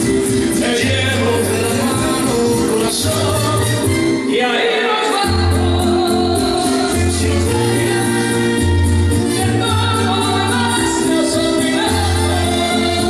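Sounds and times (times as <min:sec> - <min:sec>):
steady bass line: 0:00.0 - 0:04.2, 0:05.2 - 0:13.0
man singing into microphone: 0:00.4 - 0:13.0
instrumental accompaniment: 0:05.2 - 0:13.0.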